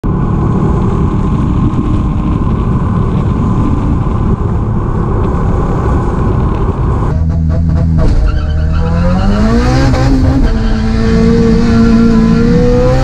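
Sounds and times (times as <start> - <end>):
motorcycle engine at road speed: 0.0 - 8.2, 9.2 - 13.0
wind rushing over microphone: 0.0 - 8.4.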